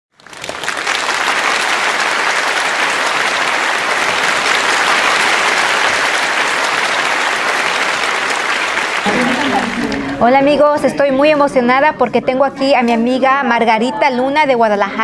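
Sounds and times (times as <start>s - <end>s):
audience applauding: 0.1s - 10.2s.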